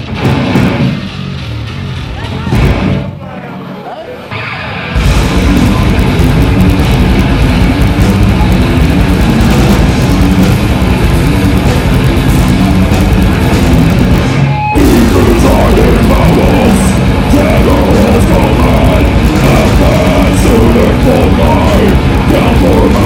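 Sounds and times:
death metal band playing live: 0:00.0 - 0:03.5, 0:04.2 - 0:23.0.

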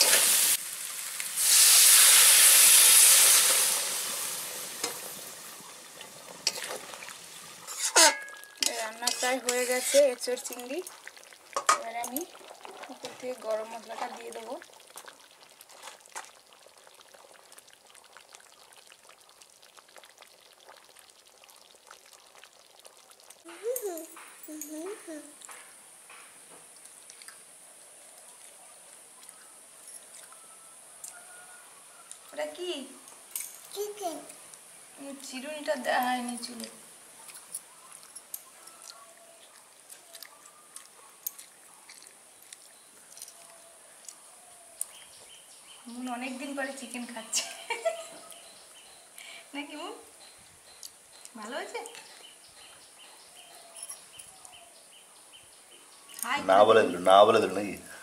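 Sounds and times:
curry bubbling and sizzling: 0:00.0 - 0:53.7
low steady hiss: 0:00.0 - 0:58.0
toddler chewing mouth clicks: 0:37.2 - 0:44.2.

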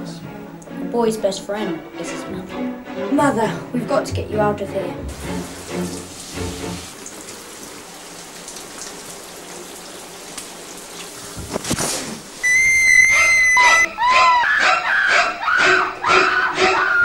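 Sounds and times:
shower water spray hissing: 0:05.1 - 0:13.8
shrill high-pitched screech: 0:12.4 - 0:17.0.

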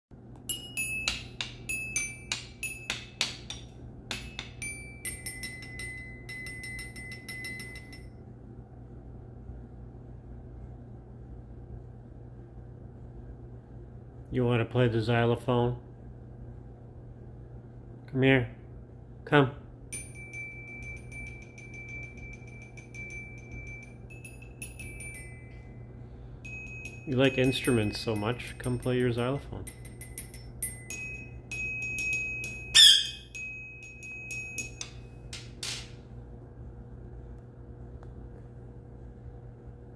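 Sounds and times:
toy glockenspiel notes: 0:00.4 - 0:08.1, 0:19.9 - 0:35.4
xylophone bars struck: 0:00.5 - 0:08.1, 0:20.0 - 0:25.6, 0:26.5 - 0:35.0.

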